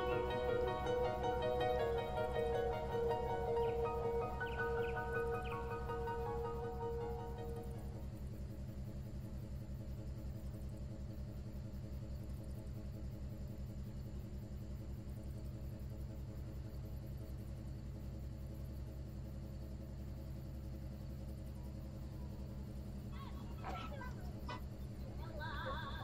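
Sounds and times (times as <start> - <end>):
ship diesel engine running: 0.0 - 12.4, 20.9 - 26.0.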